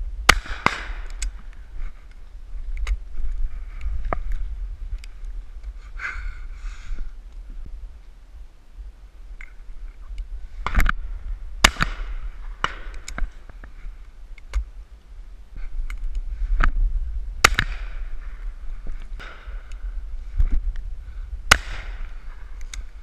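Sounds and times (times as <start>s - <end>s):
wind rumbling on microphone: 0.0s - 23.0s
shotguns firing: 0.3s - 1.2s, 11.6s - 13.1s, 17.4s - 18.1s, 21.5s - 22.2s.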